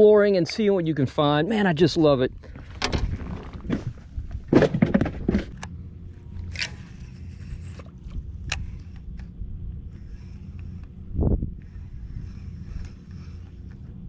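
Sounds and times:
steady low hum: 0:00.0 - 0:14.0
knocks and scrapes of handling: 0:02.5 - 0:09.3.

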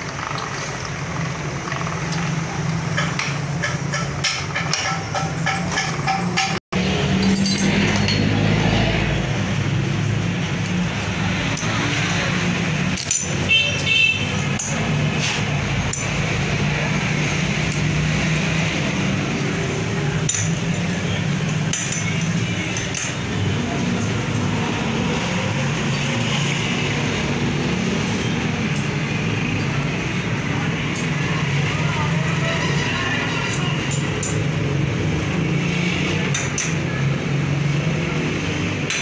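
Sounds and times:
metal tools clinking: 0:01.6 - 0:26.4, 0:32.5 - 0:34.8.

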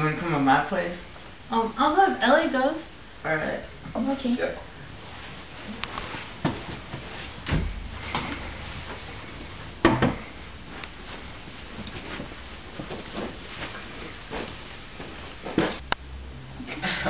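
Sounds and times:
wooden chairs scraping and knocking: 0:05.1 - 0:15.8.

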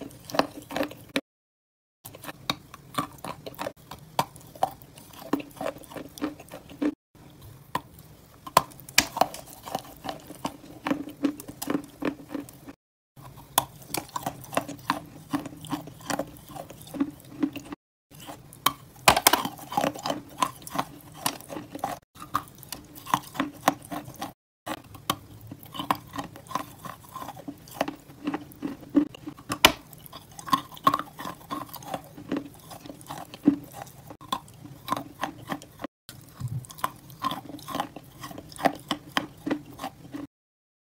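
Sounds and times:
crunchy chewing: 0:00.0 - 0:01.2, 0:02.1 - 0:40.3
moist mouth sounds: 0:36.3 - 0:36.8.

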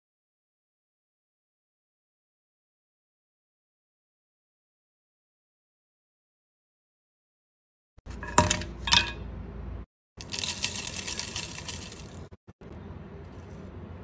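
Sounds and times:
dried peel clinking into pan: 0:10.2 - 0:12.3
ground coffee pouring: 0:10.2 - 0:12.3
tea leaves pattering into pan: 0:10.2 - 0:12.3.

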